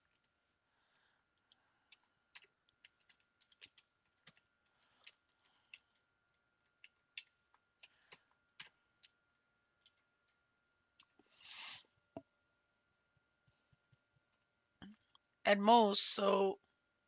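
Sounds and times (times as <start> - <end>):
computer keyboard typing: 1.8 - 9.2.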